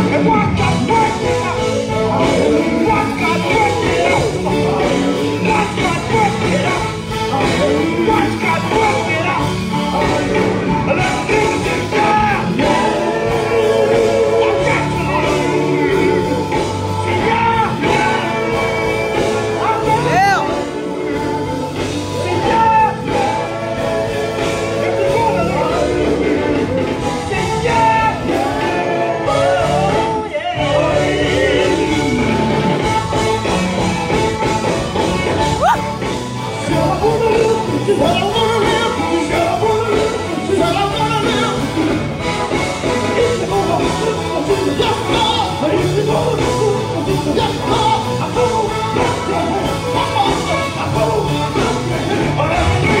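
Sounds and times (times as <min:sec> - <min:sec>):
drums: 0:00.0 - 0:53.0
gospel group singing: 0:00.0 - 0:53.0
instrumental accompaniment: 0:00.0 - 0:53.0
low bass notes: 0:00.0 - 0:53.0.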